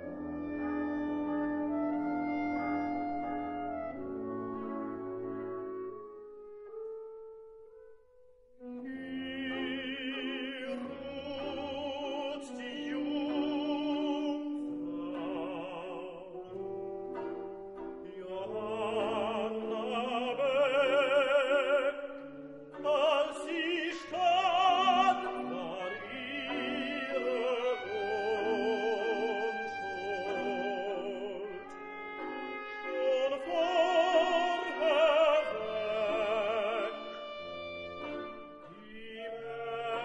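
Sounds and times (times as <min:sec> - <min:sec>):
orchestral accompaniment: 0:00.0 - 0:07.7, 0:08.6 - 0:40.0
operatic singing: 0:08.7 - 0:40.0.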